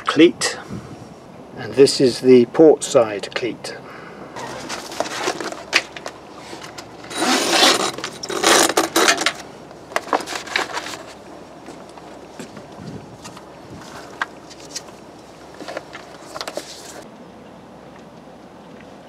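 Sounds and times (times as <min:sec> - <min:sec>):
fabric cover rustling and scraping: 0:04.4 - 0:17.1.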